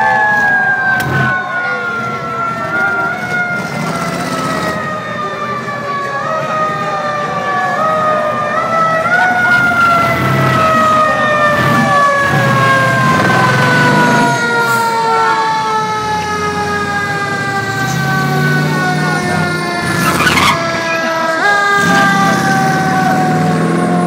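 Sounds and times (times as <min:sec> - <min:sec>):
fire truck siren wailing: 0:00.0 - 0:24.0.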